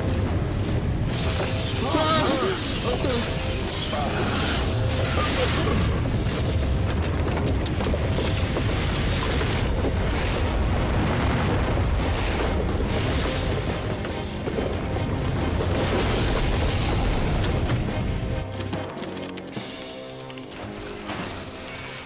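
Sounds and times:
deep rumble: 0:04.2 - 0:18.5.

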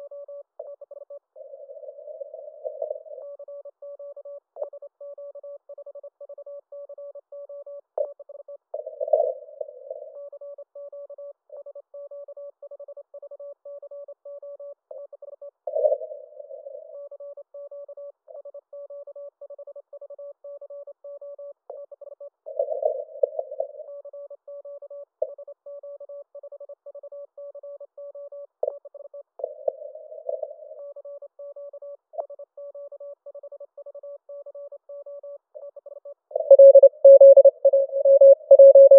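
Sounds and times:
morse code tone keyed: 0:36.4 - 0:38.9
noisy radio signals: 0:36.4 - 0:38.9.

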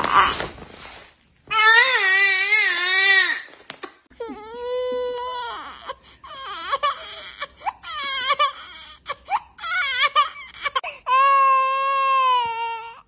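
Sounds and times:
infant crying: 0:04.2 - 0:13.0.

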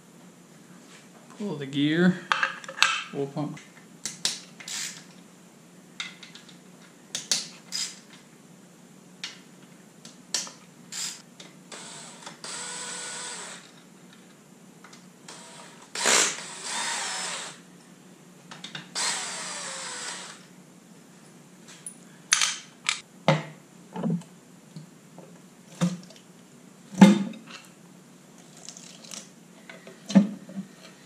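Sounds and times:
cordless drill spinning bolts: 0:04.6 - 0:05.0, 0:15.3 - 0:17.6.

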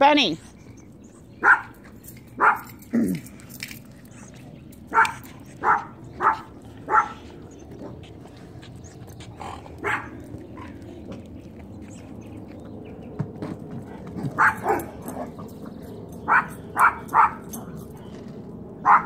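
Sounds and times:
dogs barking: 0:01.1 - 0:10.9, 0:13.8 - 0:18.1, 0:18.8 - 0:19.0.

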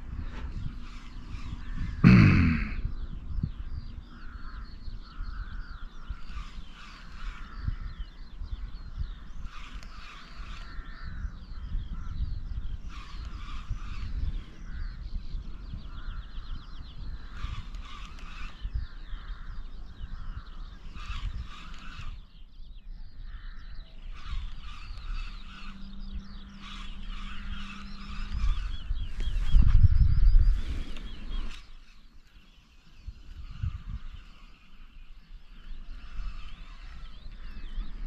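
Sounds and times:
overlapping chirping calls: 0:00.0 - 0:38.0.

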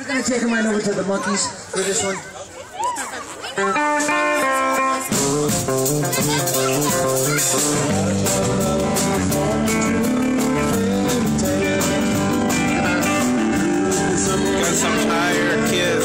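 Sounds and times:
guitar band music through pa: 0:03.2 - 0:16.0.

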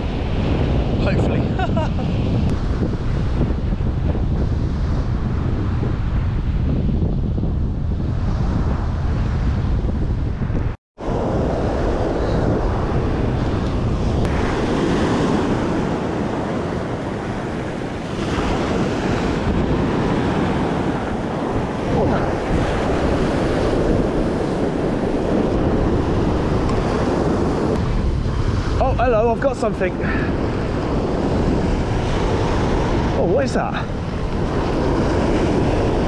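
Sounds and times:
wind buffeting microphone: 0:00.0 - 0:36.0
surf breaking on beach: 0:11.0 - 0:36.0.

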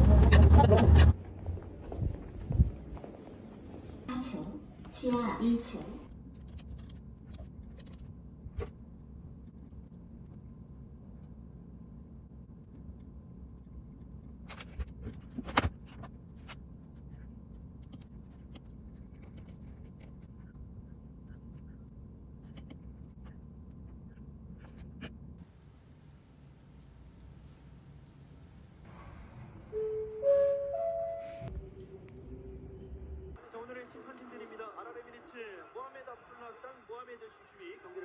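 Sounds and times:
low room hum: 0:00.0 - 0:29.9, 0:31.5 - 0:34.5.

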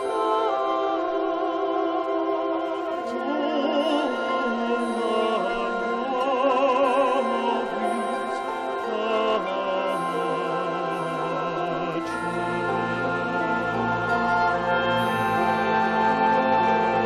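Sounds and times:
mixed choir singing: 0:00.0 - 0:17.0.

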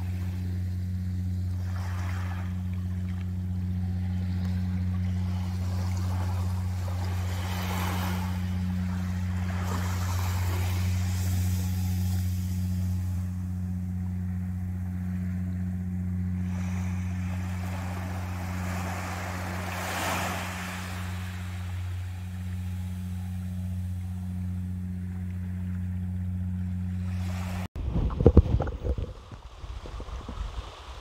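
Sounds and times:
steady low hum: 0:00.0 - 0:31.0
small waves washing on sand: 0:05.0 - 0:13.3, 0:16.4 - 0:22.8.

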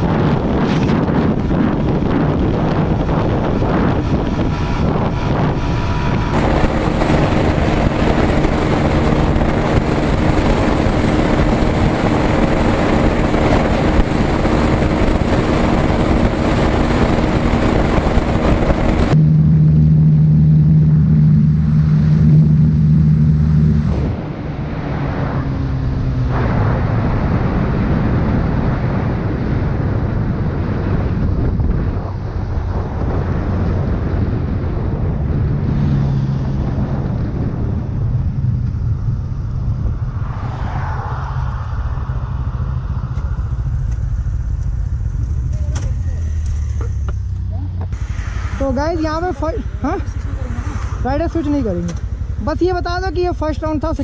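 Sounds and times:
motorcycle engine revving high: 0:00.0 - 0:54.0
wind rush on microphone: 0:00.0 - 0:54.0.

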